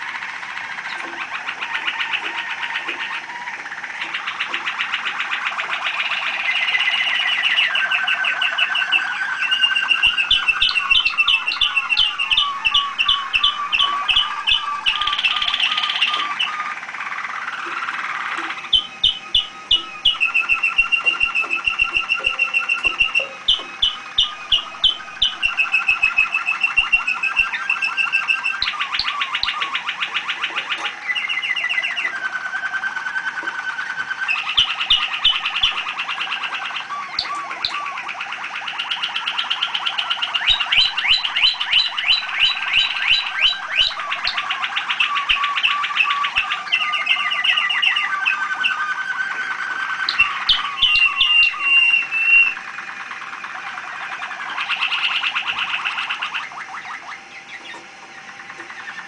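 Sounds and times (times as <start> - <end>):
canary singing trilled song: 0.0 - 59.0.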